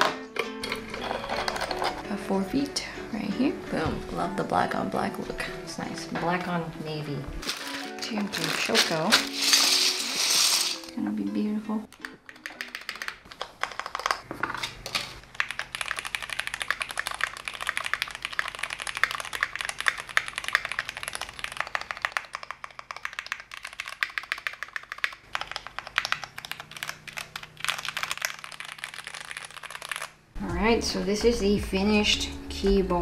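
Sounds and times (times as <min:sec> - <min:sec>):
mechanical keyboard typing: 0:11.9 - 0:14.2, 0:15.3 - 0:30.1.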